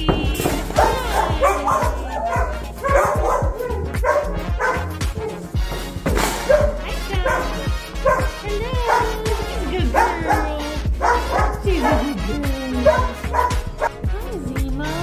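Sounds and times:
background music: 0:00.0 - 0:15.0
dogs barking and yipping: 0:00.4 - 0:14.0.

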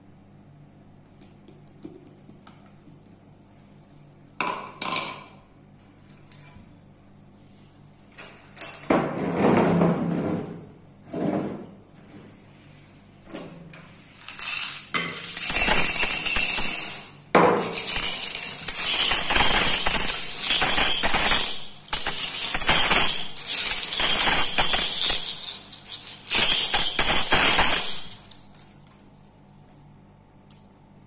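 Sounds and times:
glass marbles clinking in bowl: 0:14.2 - 0:28.7.

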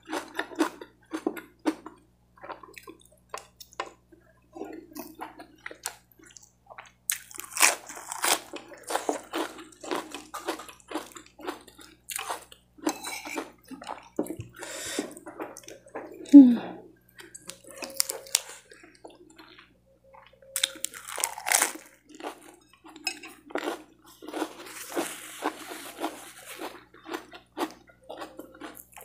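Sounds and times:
chewing food: 0:00.0 - 0:16.3, 0:17.0 - 0:29.0
crunching lettuce: 0:07.1 - 0:12.4, 0:20.6 - 0:22.5, 0:23.5 - 0:29.0.

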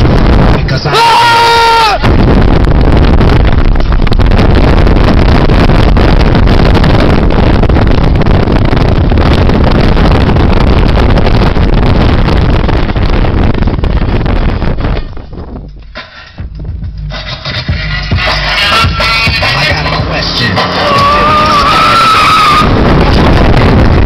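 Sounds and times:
distorted wind and road noise: 0:00.0 - 0:24.0.

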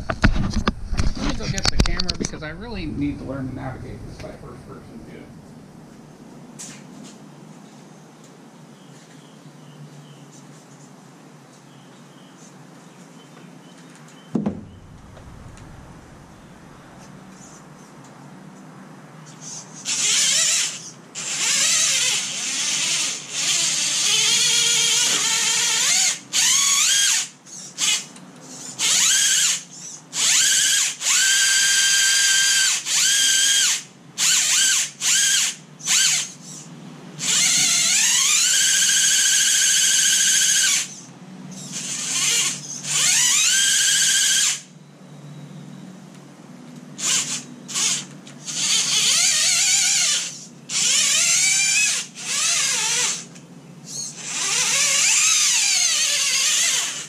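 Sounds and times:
electric motor whining: 0:14.5 - 0:16.6, 0:47.0 - 0:53.3, 0:54.0 - 0:57.0.

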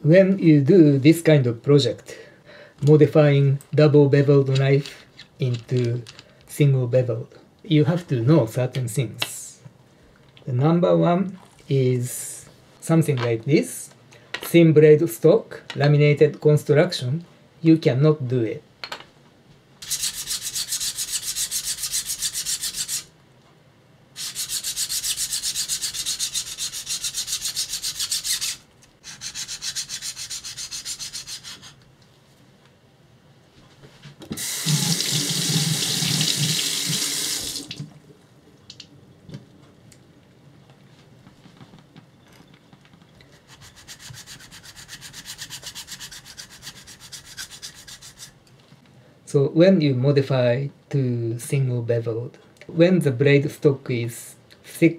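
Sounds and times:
knife scraping on whetstone: 0:19.8 - 0:23.1, 0:24.2 - 0:31.8, 0:43.4 - 0:48.3.

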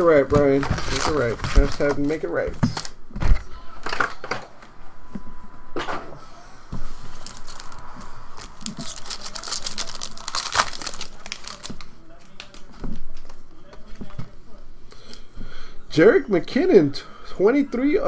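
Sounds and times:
foil wrapper tearing and crinkling: 0:00.6 - 0:02.2, 0:07.1 - 0:07.8, 0:08.4 - 0:12.7.

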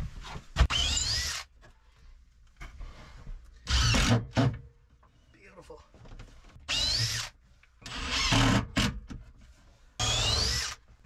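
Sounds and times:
impact driver driving screws: 0:00.6 - 0:01.5, 0:03.7 - 0:04.5, 0:06.7 - 0:09.0, 0:10.0 - 0:10.8.

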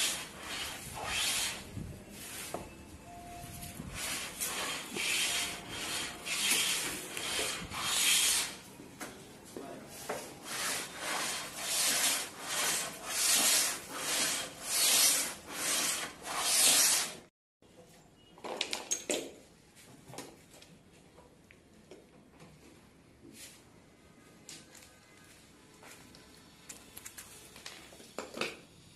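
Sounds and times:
hand sanding wood: 0:00.0 - 0:01.7, 0:03.9 - 0:08.6, 0:10.4 - 0:17.3.

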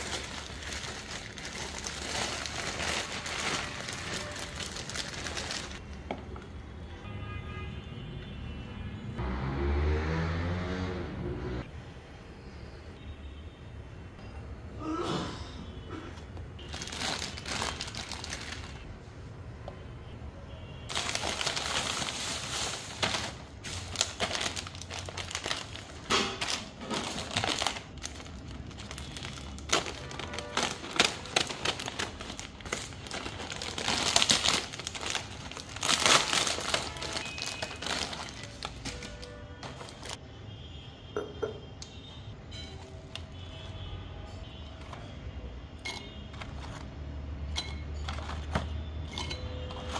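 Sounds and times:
plastic packaging crinkling: 0:00.0 - 0:05.8, 0:16.6 - 0:18.9, 0:20.9 - 0:40.2.

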